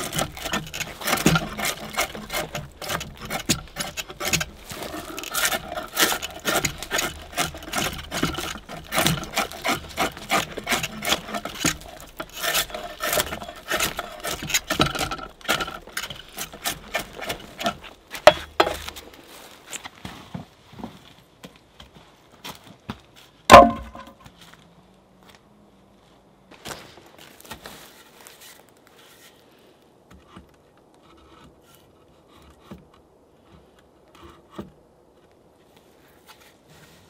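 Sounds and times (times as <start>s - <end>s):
drawknife scraping bark off wood: 0.0s - 19.0s, 23.5s - 24.2s
wooden knocks: 17.0s - 18.9s, 23.5s - 24.2s.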